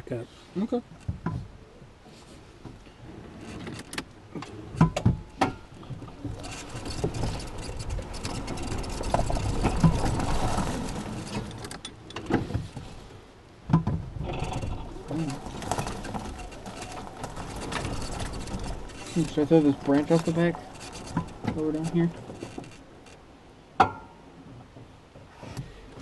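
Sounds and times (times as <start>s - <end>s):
tyre and trail noise: 1.0s - 26.0s
sharp knocks: 23.8s - 24.2s.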